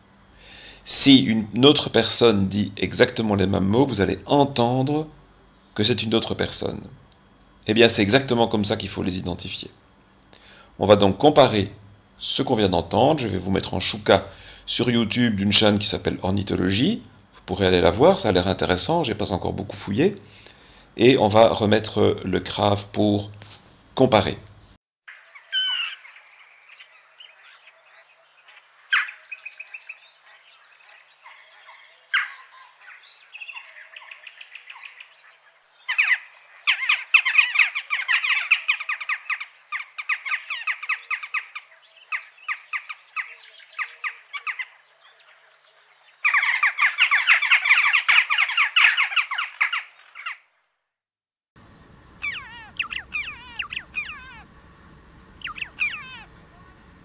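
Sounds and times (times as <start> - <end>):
jackdaws calling: 25.1 - 50.5, 51.6 - 57.0
chough calls: 25.4 - 26.1, 35.8 - 44.8, 46.2 - 50.5, 51.6 - 57.0.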